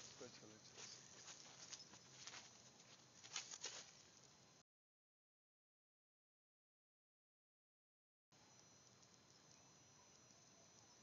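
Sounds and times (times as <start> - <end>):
faint outdoor hiss: 0.0 - 4.6, 8.4 - 11.0
soft ticks: 8.5 - 10.9.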